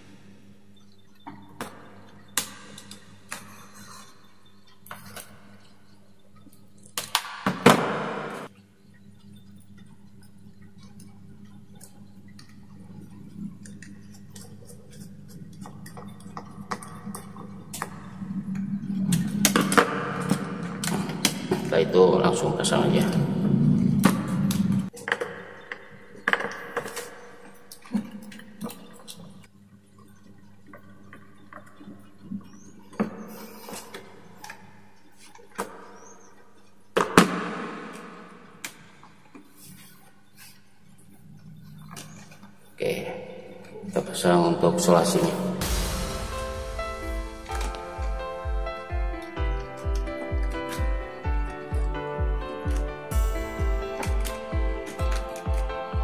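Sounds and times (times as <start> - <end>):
faint low hum: 0.0 - 37.0.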